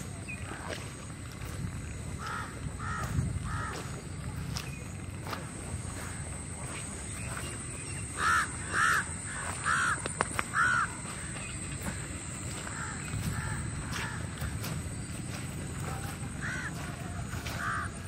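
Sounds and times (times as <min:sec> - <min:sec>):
crow cawing: 0:02.1 - 0:04.6, 0:06.6 - 0:18.0
sharp clicks: 0:09.9 - 0:10.6.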